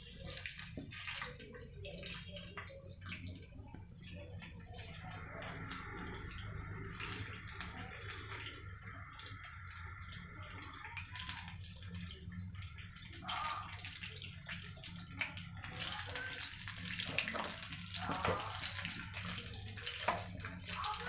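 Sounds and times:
deep-frying sizzle and crackling: 0.0s - 21.0s.

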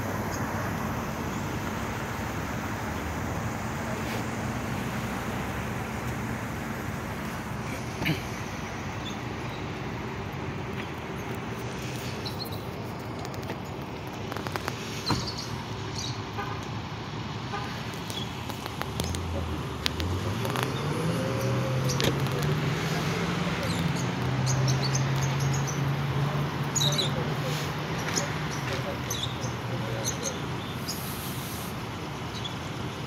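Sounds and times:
traffic noise: 0.0s - 33.0s
vehicle engine running: 0.0s - 33.0s
sharp clicks: 17.9s - 20.8s.

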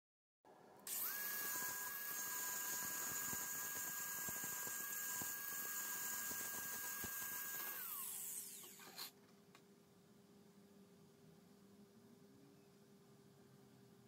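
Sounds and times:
angle grinder whining: 0.9s - 9.1s
grinder disc spinning down: 0.9s - 9.1s.

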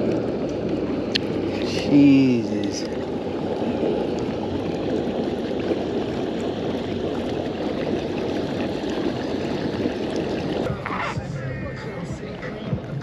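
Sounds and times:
boat engine noise: 0.0s - 13.0s
rush of water: 0.0s - 13.0s.

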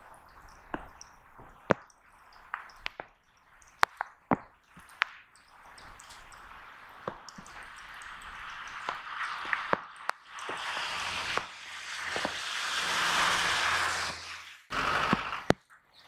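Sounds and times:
sharp ticks: 0.3s - 11.5s
outdoor hiss: 5.0s - 15.6s.

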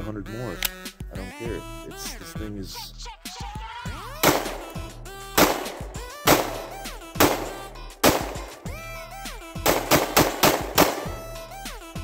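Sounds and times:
background music: 0.0s - 12.0s
pistol shots: 4.1s - 8.9s, 9.6s - 11.3s.

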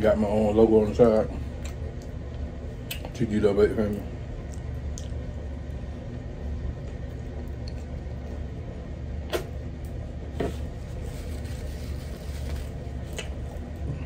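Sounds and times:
steady low hum: 0.0s - 14.0s
sharp lip smacks: 9.2s - 9.6s.

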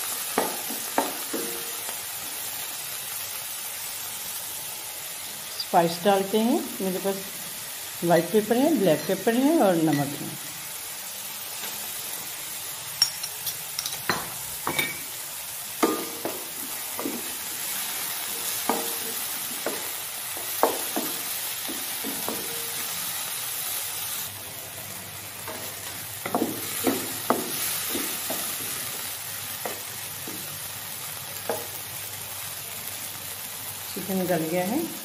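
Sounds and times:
chicken sizzling in oil: 0.0s - 35.0s.

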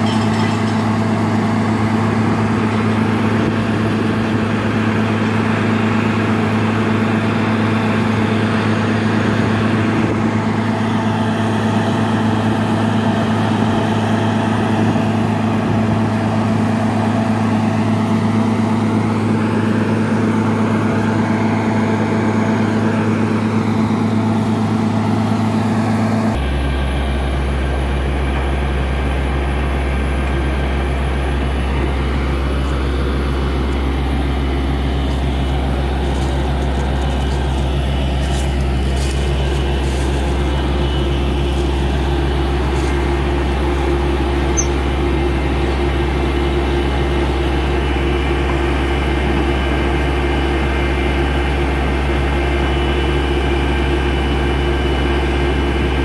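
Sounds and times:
diesel engine humming: 0.0s - 56.0s
high whine: 18.6s - 56.0s.

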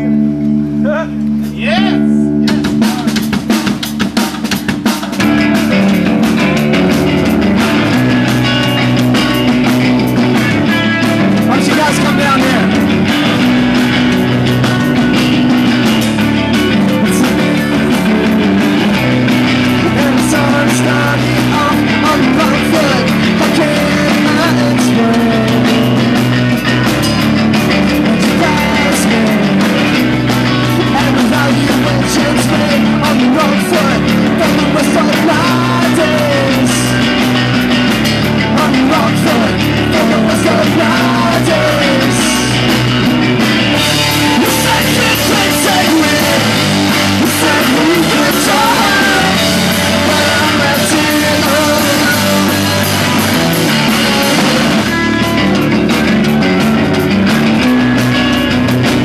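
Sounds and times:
bass guitar: 0.0s - 59.0s
distorted electric guitars: 0.0s - 59.0s
drum kit: 0.0s - 59.0s
person singing into a microphone: 19.6s - 26.2s, 27.8s - 37.1s, 38.4s - 42.6s, 43.8s - 55.4s.

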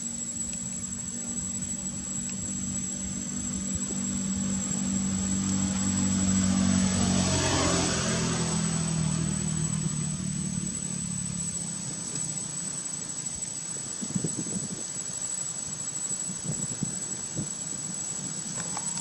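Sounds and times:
vehicle engine passing by: 3.0s - 12.4s.

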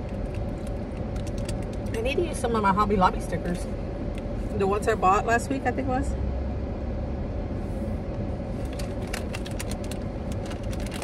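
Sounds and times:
small irregular clicks: 0.0s - 2.0s
car engine and road noise: 0.0s - 11.0s.

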